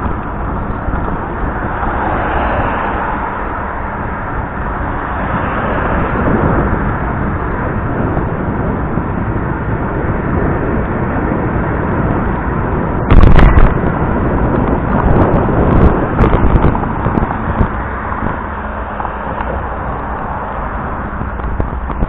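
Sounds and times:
rushing noise on microphone: 0.0 - 22.0
loud thump: 13.1 - 13.8.

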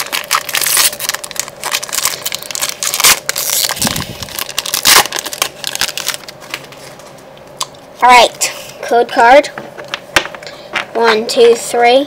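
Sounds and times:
foil wrapper crinkling: 0.0 - 7.0.

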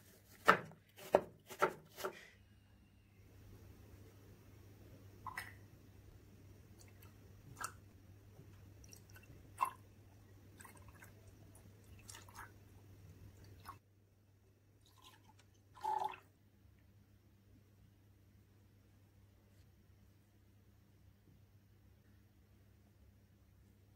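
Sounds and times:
liquid pouring into glass: 14.8 - 16.2.

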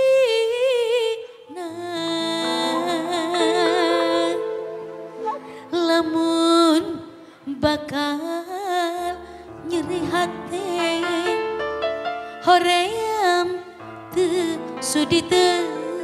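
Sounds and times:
woman singing with vibrato: 0.0 - 11.3
electric keyboard chords: 2.0 - 7.1.

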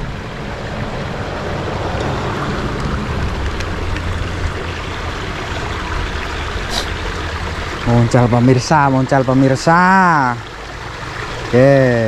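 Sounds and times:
outdoor rushing noise: 0.0 - 7.2.

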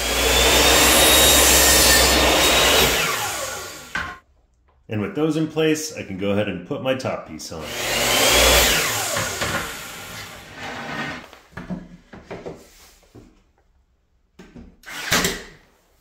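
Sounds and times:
miter saw cutting wood: 0.0 - 4.2, 7.6 - 11.2
saw blade spinning down: 0.0 - 4.2, 7.6 - 11.2.

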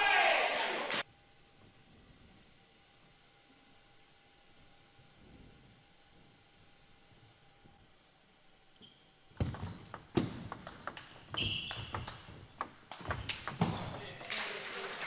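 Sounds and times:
shoes squeaking on floor: 8.8 - 14.2
table tennis ball hits: 9.4 - 14.4.

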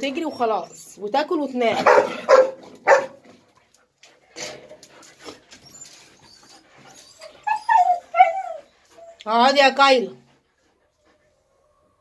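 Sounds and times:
dog whining: 5.5 - 9.2.

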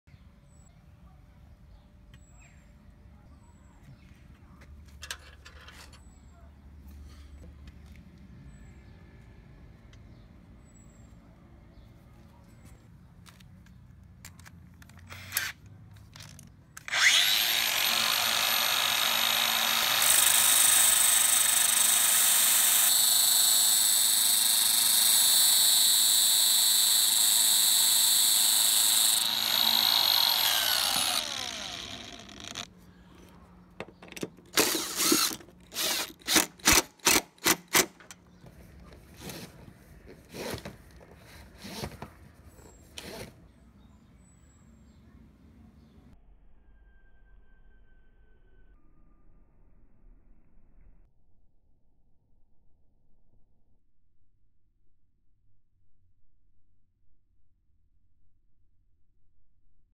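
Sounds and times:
cordless drill bursts: 15.1 - 15.6, 16.8 - 32.7, 34.6 - 37.9
angle grinder running: 16.9 - 32.7, 34.6 - 36.4.

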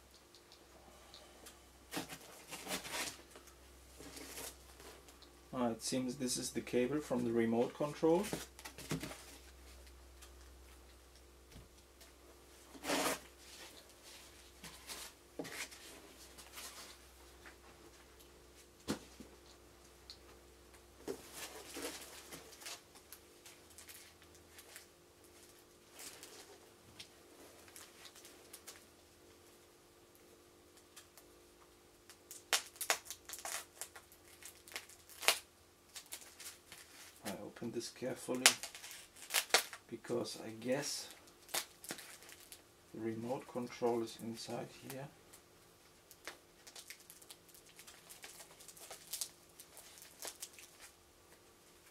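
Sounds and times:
packing foam and cardboard rustling: 1.9 - 3.4, 4.0 - 5.0, 12.7 - 17.0, 21.0 - 22.9, 46.2 - 51.0
plastic wrapping crinkling: 1.9 - 5.3, 21.1 - 26.6, 27.6 - 28.8, 32.1 - 37.5, 38.1 - 39.8, 40.7 - 42.6, 45.8 - 51.9.

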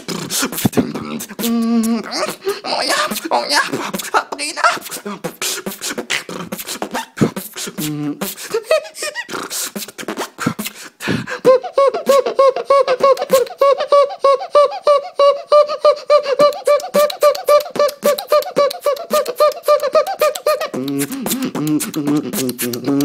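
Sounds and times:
squeaky pitched vocal note: 0.0 - 5.4, 11.4 - 23.0
beatboxing drum strokes and clicks: 0.0 - 13.8, 16.1 - 23.0.

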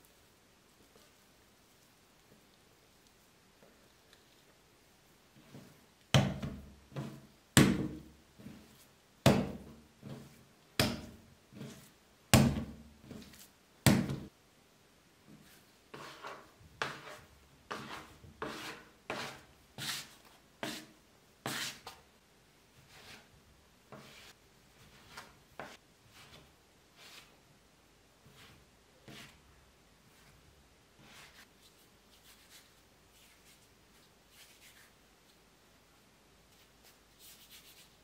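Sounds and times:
dough thudding on wooden board: 6.2 - 8.1, 9.2 - 9.7, 10.8 - 11.2, 12.3 - 12.9, 13.9 - 14.3
bench scraper tapping and scraping: 16.0 - 20.0.

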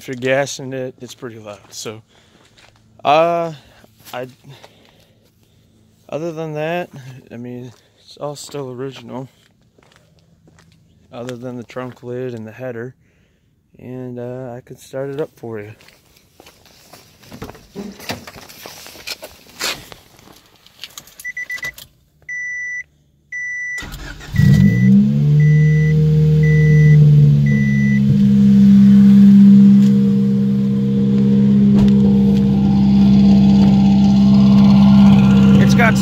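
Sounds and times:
car warning chime beeping: 21.2 - 32.2
car engine cranking and idling: 23.8 - 36.0.

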